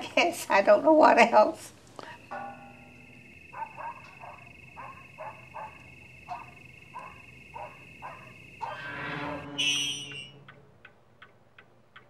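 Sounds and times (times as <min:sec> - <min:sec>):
night animal calls: 0:02.0 - 0:10.9
higher animal sound: 0:02.2 - 0:10.8
steady high trill: 0:02.2 - 0:10.8.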